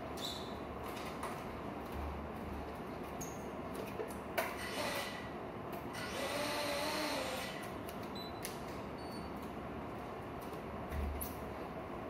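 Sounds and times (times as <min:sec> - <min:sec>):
quadcopter motors whining: 0:06.0 - 0:07.7.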